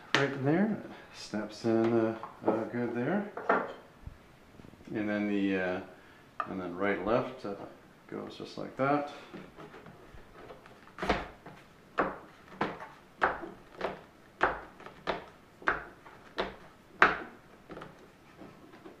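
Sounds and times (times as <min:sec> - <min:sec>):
sharp wooden knocks: 0:11.0 - 0:18.0.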